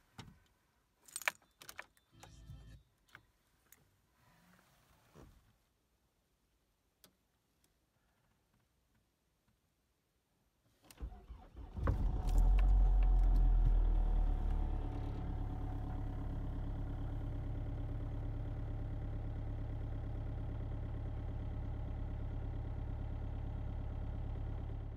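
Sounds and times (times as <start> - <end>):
diesel engine idling: 12.4 - 24.9.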